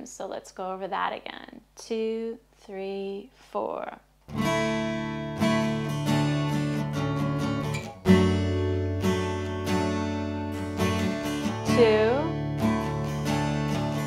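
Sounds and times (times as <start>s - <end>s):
acoustic guitar strumming: 4.3s - 14.0s.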